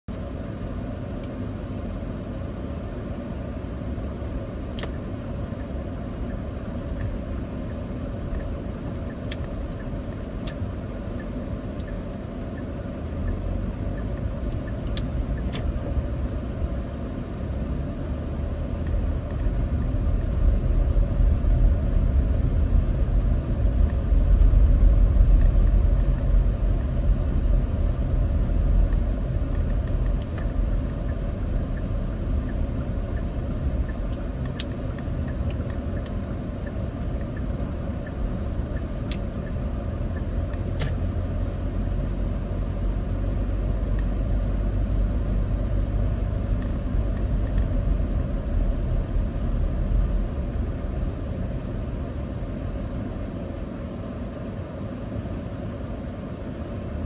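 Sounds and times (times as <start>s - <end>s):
car engine and tyres rumbling: 0.0s - 57.0s.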